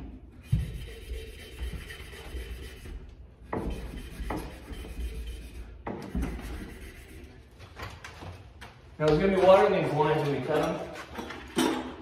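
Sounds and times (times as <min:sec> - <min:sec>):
scraping on a copper pipe: 0:00.3 - 0:08.4.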